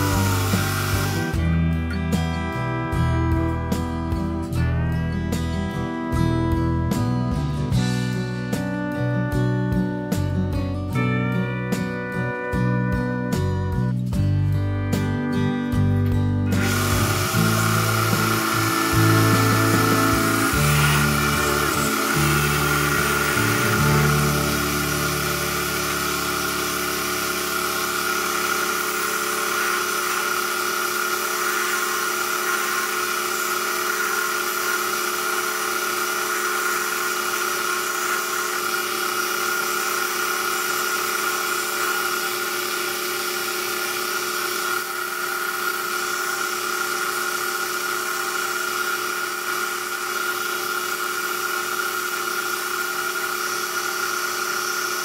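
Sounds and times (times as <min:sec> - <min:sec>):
filing wood by hand: 0:00.0 - 0:01.4, 0:16.6 - 0:55.0
small electric motor whining: 0:00.0 - 0:01.6, 0:16.5 - 0:55.0.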